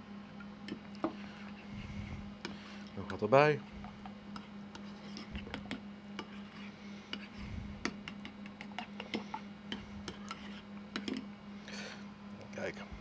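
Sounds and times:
metal spoon stirring in ceramic bowl: 4.3s - 11.2s.

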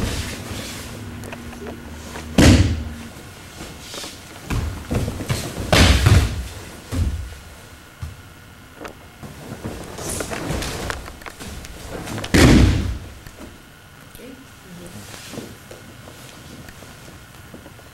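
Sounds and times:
bodies thudding onto a mat: 2.3s - 7.4s, 9.2s - 13.6s
slaps on a mat: 2.4s - 2.9s, 4.4s - 7.3s, 12.2s - 13.1s.

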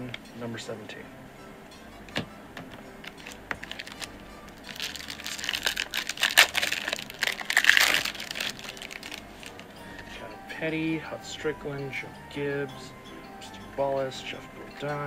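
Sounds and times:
foil wrapper crinkling: 3.0s - 9.8s.

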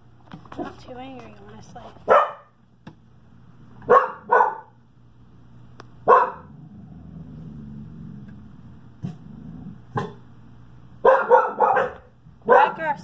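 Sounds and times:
dog barking: 2.1s - 2.6s, 3.8s - 4.8s, 6.0s - 6.5s, 10.0s - 10.2s, 11.0s - 12.9s.

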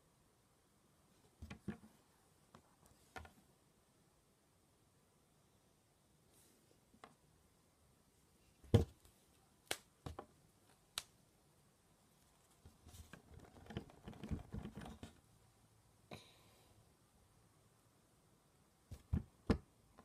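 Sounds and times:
small taps and rustles: 1.2s - 3.5s, 8.6s - 11.1s, 12.4s - 15.2s.

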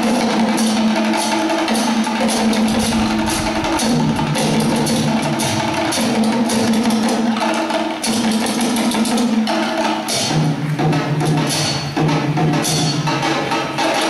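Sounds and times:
dhol drum: 0.0s - 14.0s
marching bass drum: 2.1s - 6.2s
low held note: 2.2s - 5.8s.

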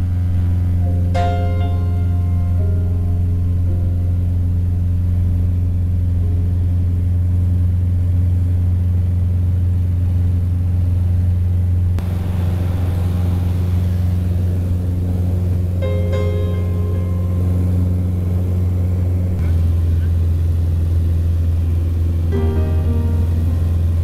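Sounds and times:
airplane engine and propeller drone: 0.0s - 24.0s
rushing hiss of air: 12.0s - 15.9s.

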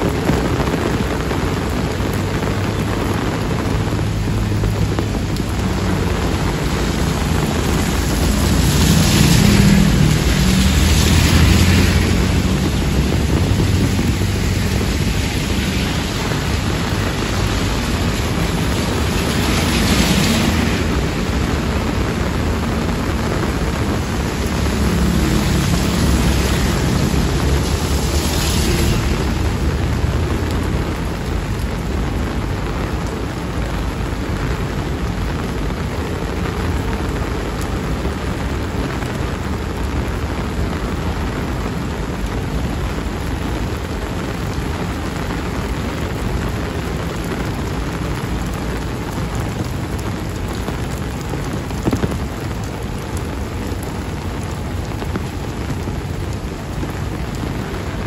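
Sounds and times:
heavy rain on pavement: 0.0s - 58.0s
motorbikes passing through water: 0.1s - 58.0s.

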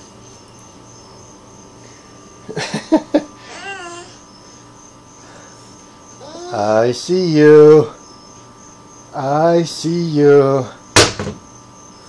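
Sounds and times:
baby babbling: 3.4s - 4.2s, 6.2s - 6.8s.

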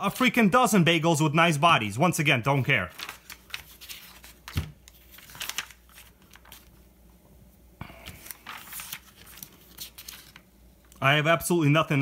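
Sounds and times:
magazine pages rustling: 2.5s - 6.9s, 7.9s - 11.0s.

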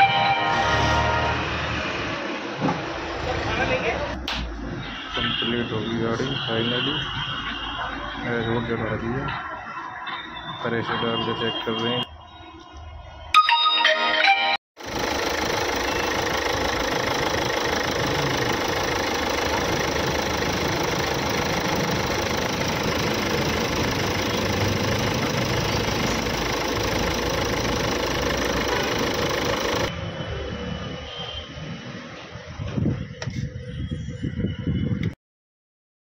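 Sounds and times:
car engine idling: 14.8s - 29.9s.

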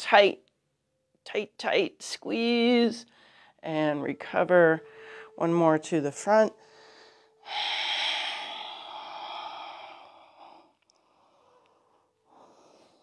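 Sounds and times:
person exhaling through mouth: 7.4s - 10.8s.

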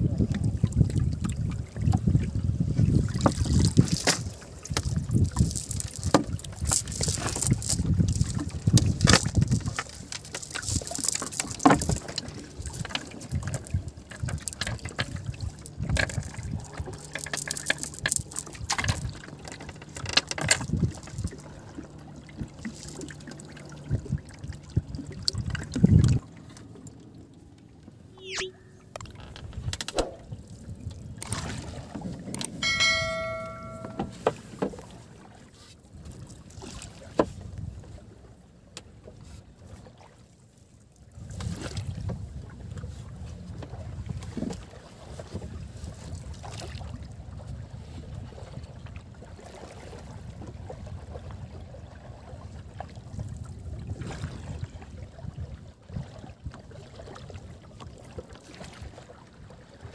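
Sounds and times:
water rushing against hull: 0.0s - 59.9s
short ringing tone: 28.2s - 28.8s, 32.6s - 34.2s
pole knocking: 32.6s - 34.3s.

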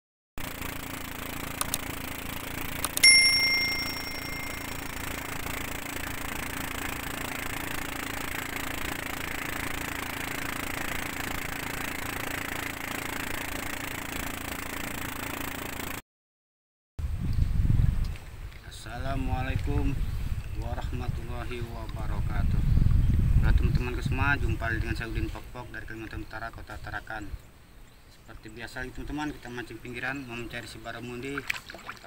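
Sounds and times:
boat engine humming: 0.4s - 16.0s
wind: 0.4s - 16.0s, 17.0s - 32.0s
boat wake rushing: 0.5s - 15.8s
notification bell ding: 3.0s - 5.0s.

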